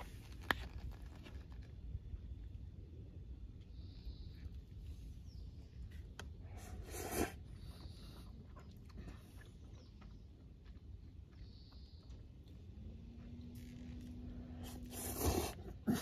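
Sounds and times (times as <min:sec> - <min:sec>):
person slurping noodles: 0:14.7 - 0:16.0.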